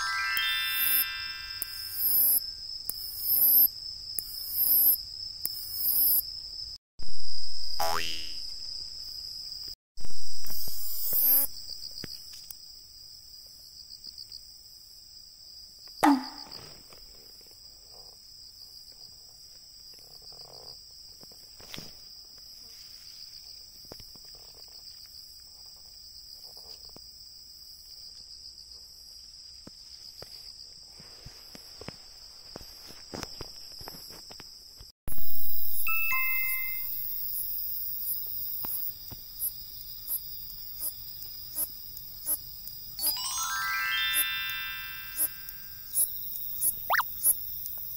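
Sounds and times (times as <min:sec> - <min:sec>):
chime-like effect: 0:00.0 - 0:02.1, 0:35.8 - 0:37.0, 0:43.0 - 0:46.0
crickets and katydids trilling: 0:00.2 - 0:13.1, 0:36.8 - 0:44.4, 0:45.0 - 0:47.9.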